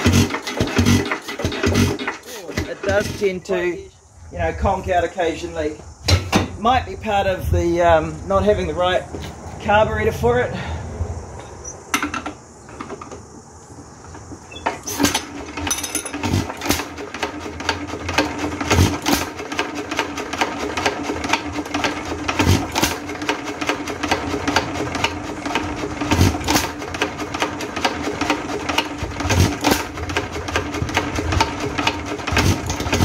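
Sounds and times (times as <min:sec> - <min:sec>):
engine running with fast clatter: 0:00.0 - 0:03.3, 0:14.2 - 0:33.0
heavy engine clonk: 0:00.0 - 0:03.8, 0:11.4 - 0:33.0.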